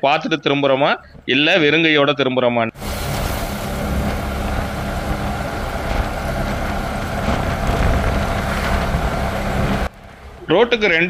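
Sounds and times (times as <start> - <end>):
road noise: 2.7 - 11.0
auto-rickshaw engine running: 2.8 - 11.0.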